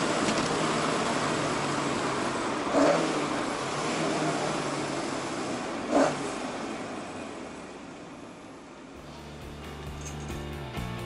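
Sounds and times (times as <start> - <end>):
road noise: 0.0 - 11.0
car engine running: 9.0 - 11.0.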